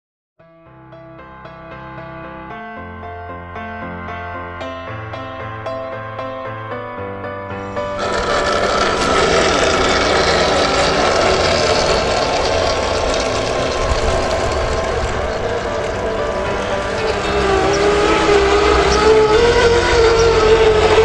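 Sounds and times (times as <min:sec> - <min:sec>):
short piano music: 0:00.4 - 0:10.6, 0:13.3 - 0:21.0
toy truck electric motor: 0:07.8 - 0:21.0.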